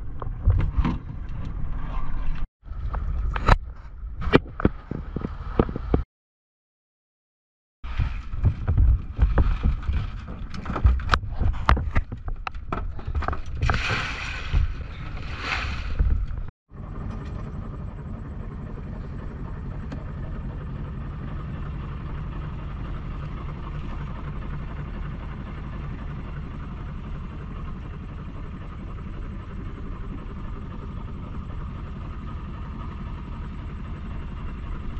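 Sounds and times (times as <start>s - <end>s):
boat engine humming: 7.9s - 34.9s
knocking and clatter: 8.0s - 13.9s.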